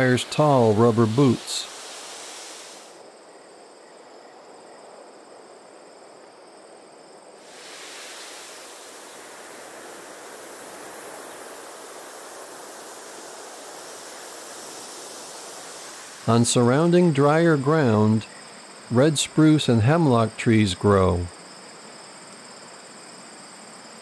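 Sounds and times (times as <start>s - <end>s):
thin high steady tone: 0.0s - 3.0s
outdoor hiss: 0.0s - 24.0s.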